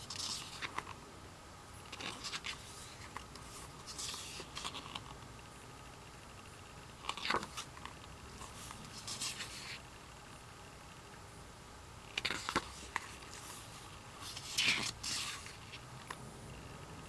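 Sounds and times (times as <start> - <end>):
book pages turning: 0.0 - 1.0, 1.9 - 5.2, 7.0 - 9.9, 12.1 - 16.2.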